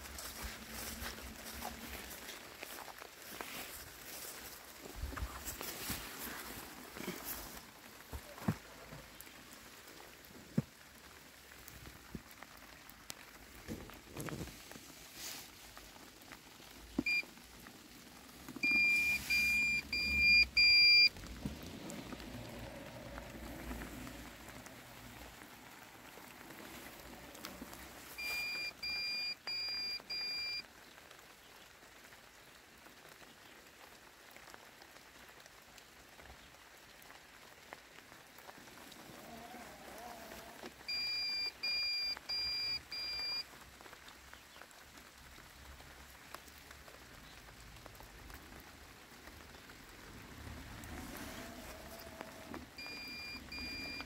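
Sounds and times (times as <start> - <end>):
rain pattering: 0.0 - 54.0
robotic lawn mower beeping: 18.6 - 21.1, 28.2 - 30.6, 40.9 - 43.4, 52.8 - 54.0.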